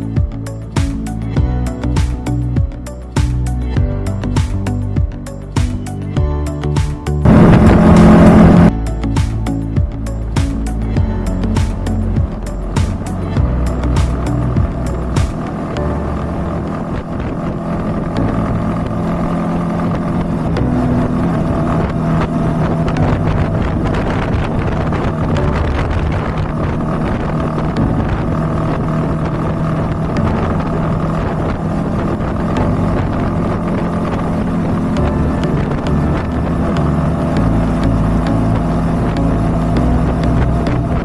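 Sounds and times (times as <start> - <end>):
motorcycle engine running: 0.0 - 41.0
wind on microphone: 7.2 - 8.8, 12.2 - 41.0.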